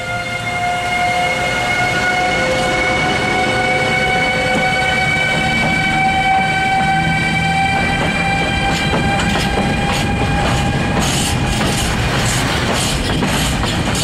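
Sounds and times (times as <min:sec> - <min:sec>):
electric locomotive inverter tones: 0:00.0 - 0:12.0
wagon wheels clattering over rail joints: 0:07.9 - 0:14.0.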